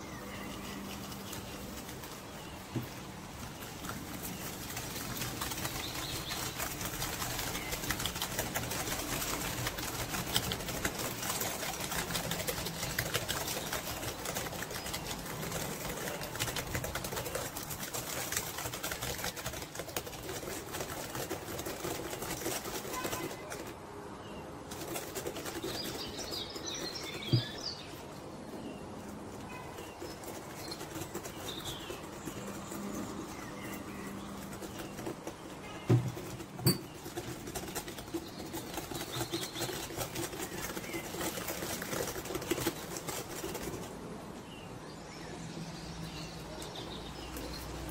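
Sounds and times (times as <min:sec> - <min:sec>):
whisk beating in glass bowl: 0:04.2 - 0:23.6, 0:33.6 - 0:43.7.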